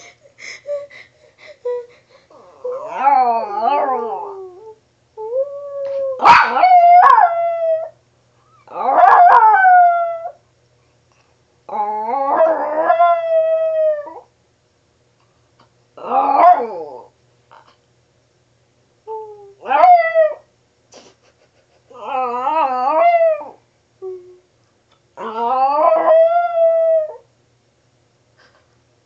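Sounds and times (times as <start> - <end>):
dog howling: 2.4 - 8.0, 8.7 - 10.4, 11.7 - 14.3, 16.0 - 17.1, 22.0 - 23.6, 25.2 - 27.2.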